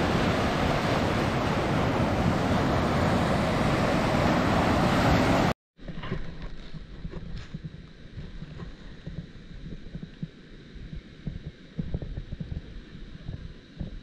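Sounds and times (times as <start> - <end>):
surf rushing: 0.0 - 5.5
wind on the microphone: 0.0 - 14.0.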